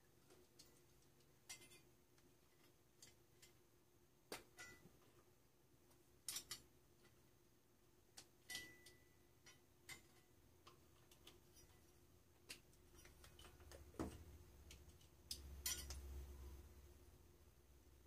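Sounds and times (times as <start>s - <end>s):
pliers clicks and metallic clinks: 6.3s - 6.6s, 14.7s - 16.1s.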